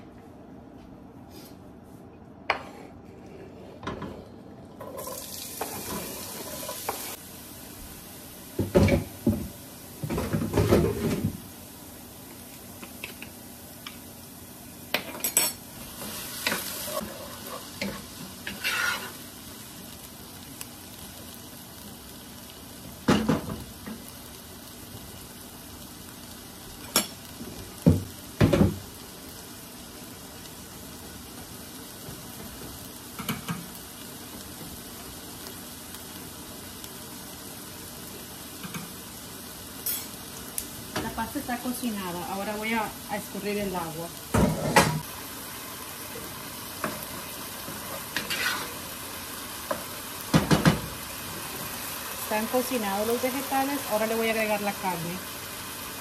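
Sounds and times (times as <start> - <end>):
spoon stirring and scraping pot: 4.8 - 7.2, 16.4 - 19.2, 47.7 - 48.8
vegetables sizzling in hot oil: 4.8 - 56.0.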